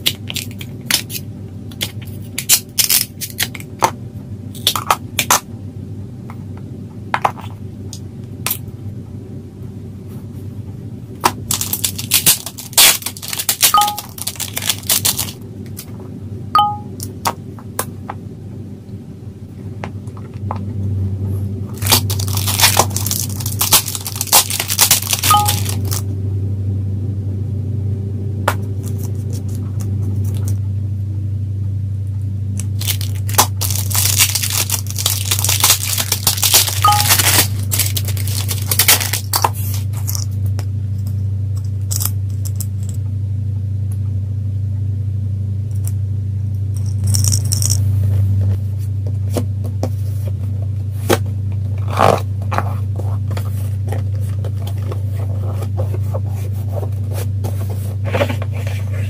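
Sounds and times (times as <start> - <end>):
plastic and paper crinkling and tearing: 0.0 - 3.7, 11.4 - 15.4, 21.8 - 26.0, 32.6 - 40.4, 51.8 - 59.0.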